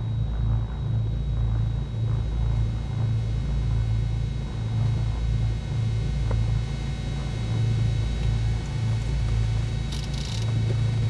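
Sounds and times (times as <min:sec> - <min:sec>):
twin piston engines droning: 0:09.8 - 0:11.0.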